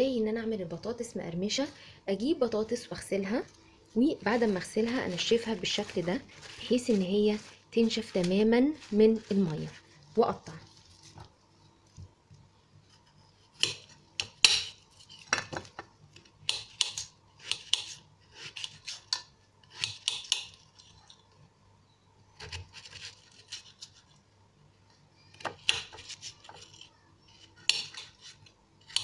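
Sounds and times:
knife slicing potato: 0:04.2 - 0:10.4, 0:13.4 - 0:15.4, 0:16.4 - 0:20.6, 0:25.3 - 0:29.0.

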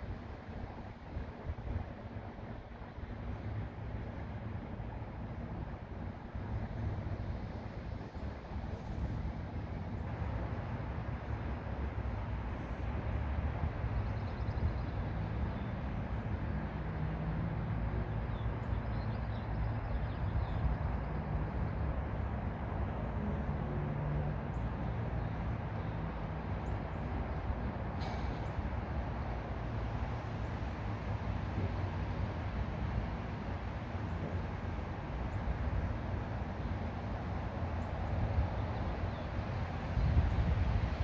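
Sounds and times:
wind buffeting microphone: 0:39.4 - 0:41.0.

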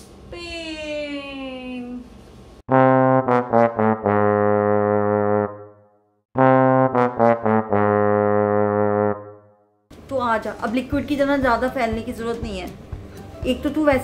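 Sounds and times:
brass music sting: 0:02.7 - 0:05.8, 0:06.4 - 0:09.5.

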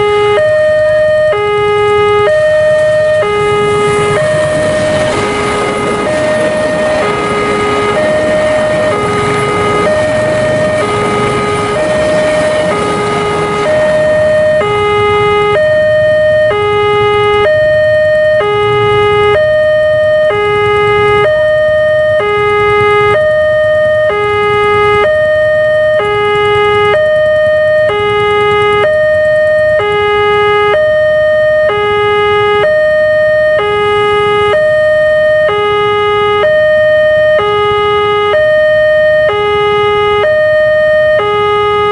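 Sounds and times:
level crossing two-tone alarm: 0:00.0 - 0:41.9
train carriages rumbling past: 0:02.6 - 0:17.9.

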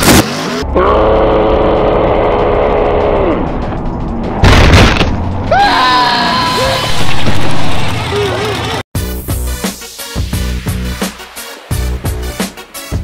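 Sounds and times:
music: 0:00.6 - 0:07.1, 0:08.6 - 0:13.0
loud boom: 0:04.4 - 0:05.4
truck engine revving: 0:06.5 - 0:08.8.

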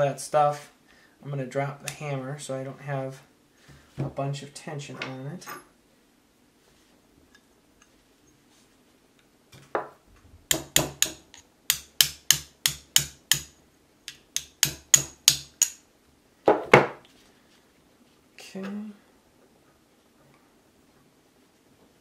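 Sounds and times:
hammer tapping steel punch: 0:10.5 - 0:15.8.

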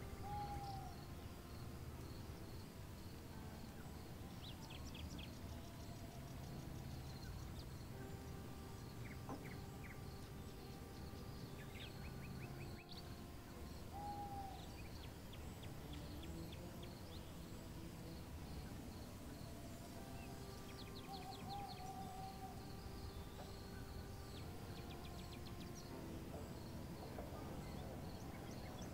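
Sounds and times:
bird whistle: 0:00.0 - 0:01.1, 0:19.5 - 0:25.8
birds chirping: 0:00.0 - 0:28.9.

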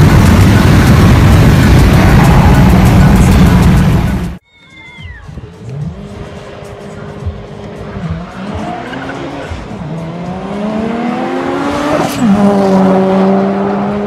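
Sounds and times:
race cars accelerating: 0:05.6 - 0:14.0.

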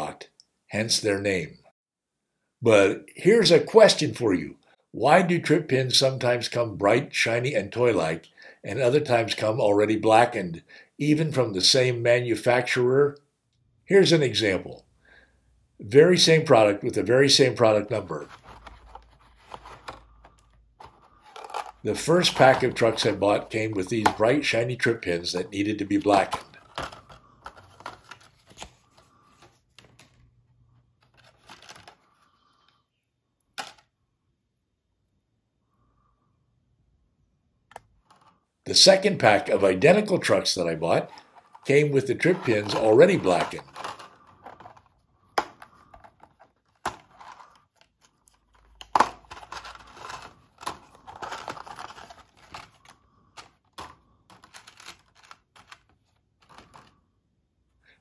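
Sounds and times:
plastic blister pack crinkling: 0:18.2 - 0:24.5, 0:41.0 - 0:57.0.

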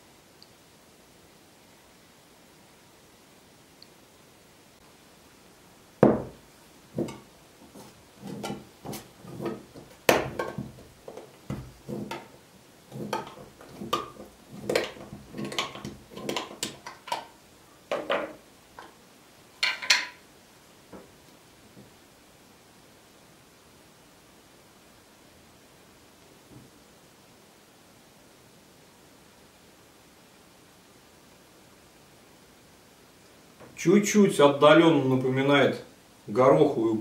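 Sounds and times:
glass jar knocks and clinks: 0:06.0 - 0:06.4, 0:08.3 - 0:10.9.

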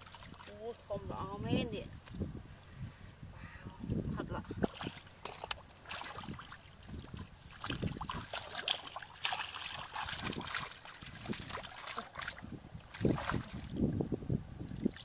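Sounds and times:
mud squelching: 0:00.0 - 0:02.2, 0:04.6 - 0:13.9
hands splashing in muddy water: 0:04.6 - 0:13.8.

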